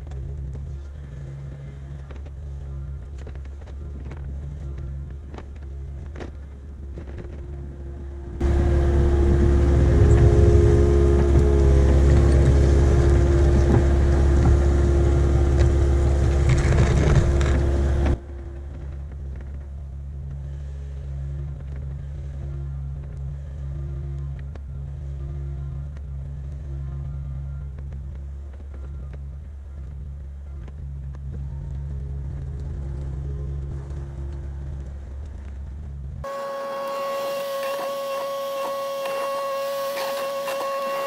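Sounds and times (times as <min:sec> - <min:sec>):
excavator diesel engine running: 0:07.7 - 0:19.6, 0:36.2 - 0:41.0.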